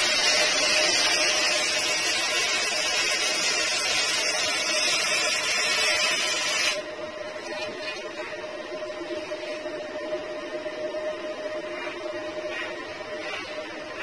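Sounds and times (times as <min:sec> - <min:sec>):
welding arc crackling: 0:00.0 - 0:06.8
steady hum: 0:00.0 - 0:14.0.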